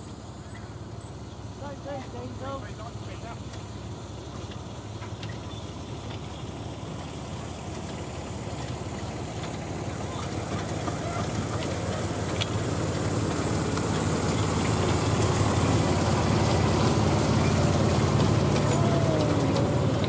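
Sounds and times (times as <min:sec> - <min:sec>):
locomotive engine humming: 0:00.0 - 0:20.0.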